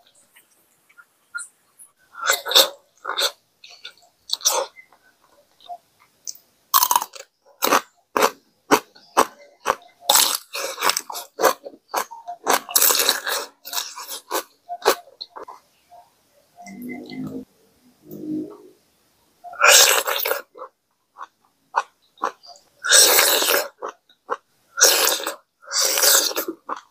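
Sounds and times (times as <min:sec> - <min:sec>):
crunchy chewing of cucumber: 0:06.3 - 0:15.6, 0:19.6 - 0:26.9.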